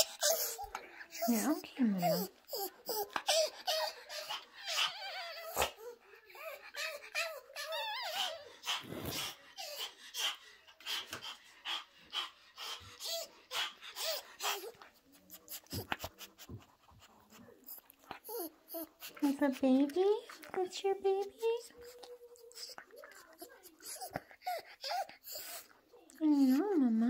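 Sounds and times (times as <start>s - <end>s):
dog whimpering: 0.0s - 9.9s, 17.6s - 19.2s, 21.2s - 27.0s.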